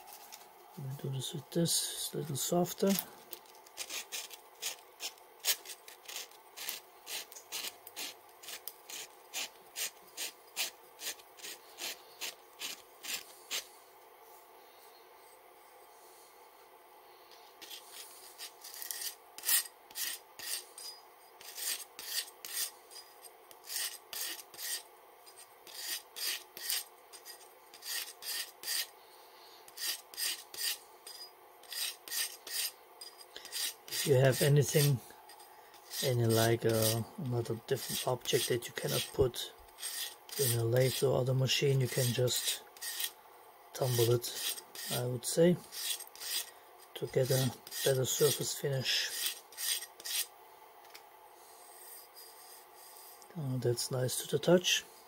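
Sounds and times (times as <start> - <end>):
hand sanding rasping strokes: 3.8 - 13.7, 17.6 - 20.8, 21.4 - 23.0, 23.6 - 24.8, 25.6 - 28.9, 29.7 - 30.8, 31.6 - 32.8, 33.4 - 35.0, 35.7 - 43.2, 43.8 - 50.3.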